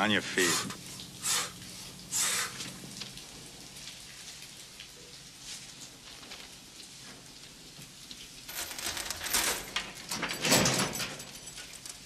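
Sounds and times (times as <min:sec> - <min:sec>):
chain rattling against mesh door: 0:08.5 - 0:12.0.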